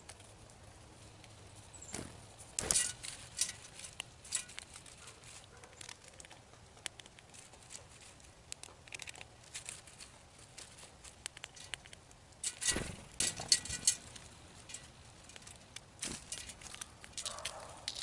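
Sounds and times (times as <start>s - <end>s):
bills tapping on seed: 1.2s - 18.0s
seeds scattering: 1.8s - 6.3s
knocks and rustling: 2.0s - 5.4s, 12.4s - 18.0s.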